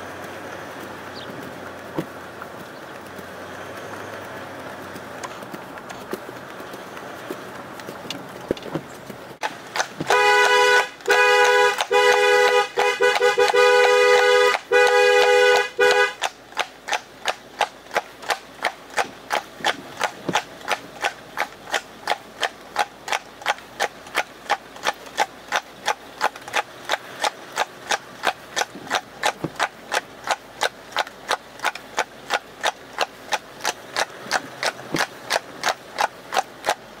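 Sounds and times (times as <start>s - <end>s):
hooves clip-clopping on hard surface: 0.0s - 37.0s
two-tone car horn: 10.0s - 16.2s.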